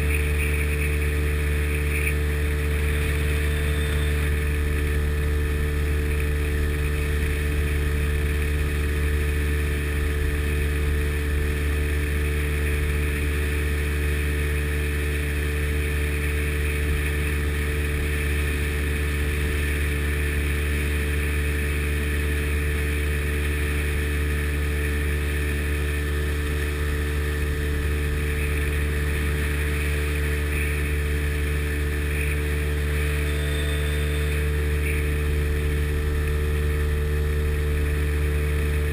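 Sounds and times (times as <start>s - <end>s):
boat engine running steadily: 0.0s - 38.9s.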